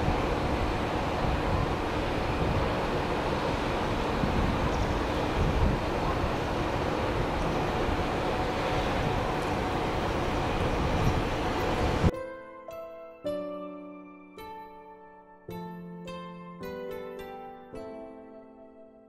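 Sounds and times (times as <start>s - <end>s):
diesel railcar engine and wheels rumbling: 0.0s - 12.1s
wind buffeting microphone: 0.0s - 12.1s.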